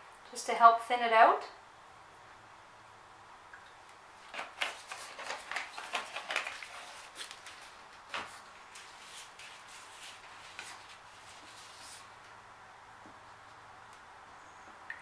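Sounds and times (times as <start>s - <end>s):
plastic bottles rustling and clicking: 4.2s - 11.0s.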